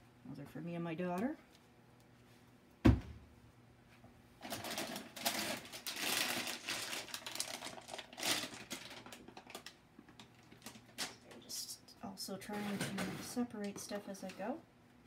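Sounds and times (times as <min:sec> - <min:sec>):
plastic bag rustling: 0:04.4 - 0:11.3.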